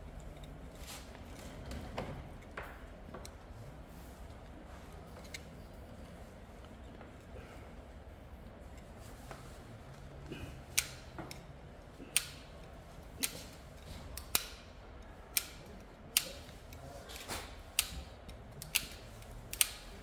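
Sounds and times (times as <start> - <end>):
wire tool snapping shut clicks: 10.7 - 11.4, 12.1 - 12.5, 14.1 - 14.7, 15.3 - 20.0.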